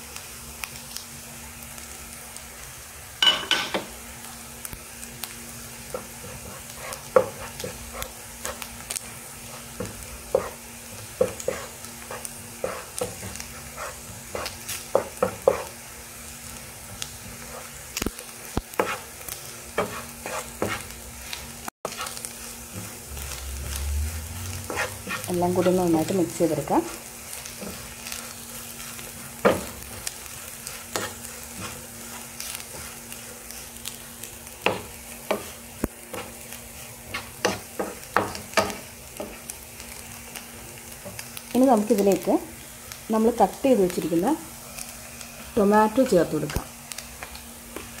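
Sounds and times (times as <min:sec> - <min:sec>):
food frying sizzle: 0:00.0 - 0:48.0
wooden spoon scraping a pan: 0:05.9 - 0:15.8, 0:16.8 - 0:17.8, 0:18.4 - 0:21.0, 0:21.9 - 0:34.0, 0:34.6 - 0:39.5.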